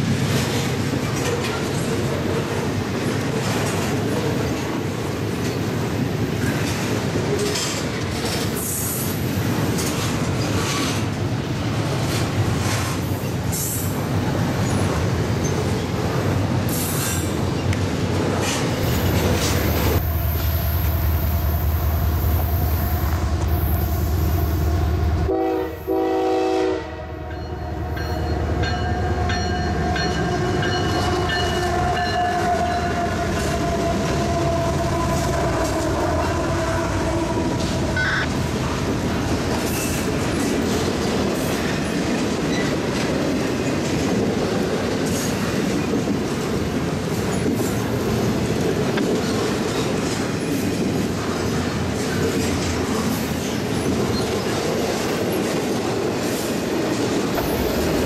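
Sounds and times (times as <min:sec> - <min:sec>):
freight cars clattering on rails: 0:00.0 - 0:20.0, 0:37.5 - 0:58.0
train horn: 0:22.8 - 0:29.6, 0:30.3 - 0:38.4
diesel locomotive rumble: 0:57.2 - 0:58.0.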